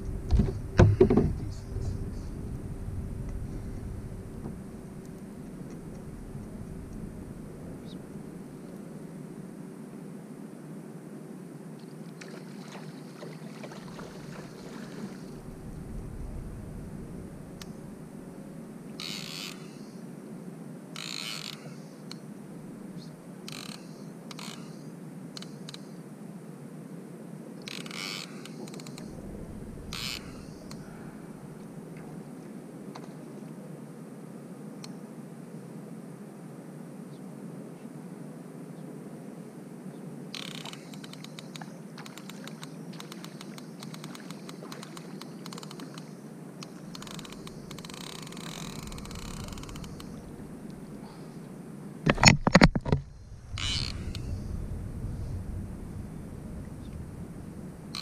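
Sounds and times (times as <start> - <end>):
steady low rush: 0.0 - 9.1, 15.2 - 19.0, 29.1 - 32.4, 48.4 - 51.9, 53.0 - 58.0
fishing reel drag giving line: 19.0 - 20.0, 21.0 - 22.2, 23.5 - 24.8, 27.6 - 31.0, 40.4 - 51.3, 53.1 - 55.4, 57.7 - 58.0
fishing reel clicking: 46.9 - 50.2.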